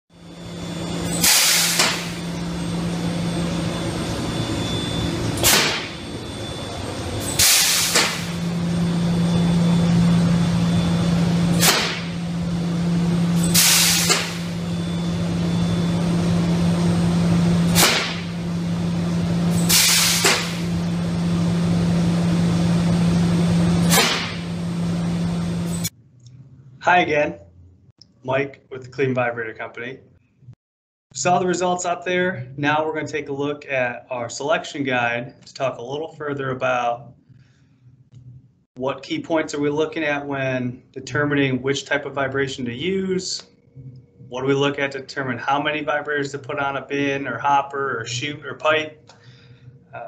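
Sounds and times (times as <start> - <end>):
pneumatic vibrator humming: 0.1 - 26.8
sharp blast of air hiss: 1.0 - 2.2, 5.4 - 6.0, 7.2 - 8.6, 11.5 - 12.2, 13.4 - 14.6, 17.6 - 18.4, 19.5 - 20.8, 23.8 - 24.5.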